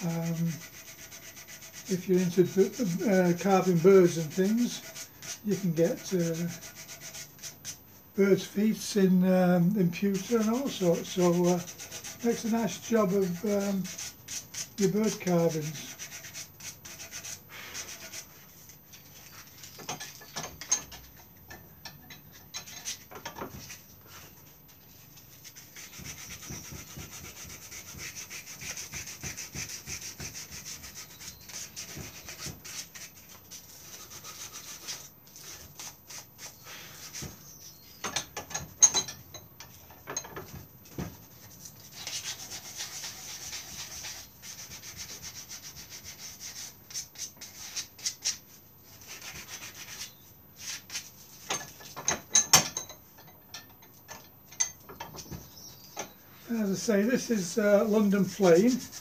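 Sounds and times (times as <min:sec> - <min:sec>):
sandpaper rasping on wood: 0:00.0 - 0:07.8, 0:09.9 - 0:19.7, 0:25.4 - 0:37.4, 0:41.8 - 0:51.4, 0:56.5 - 0:59.0.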